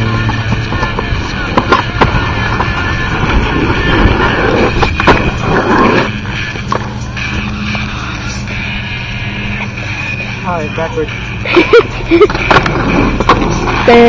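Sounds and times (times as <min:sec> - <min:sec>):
skateboard clacking: 0:00.0 - 0:08.6, 0:11.6 - 0:14.0
skateboard wheels rumbling: 0:00.0 - 0:10.4, 0:11.5 - 0:14.0.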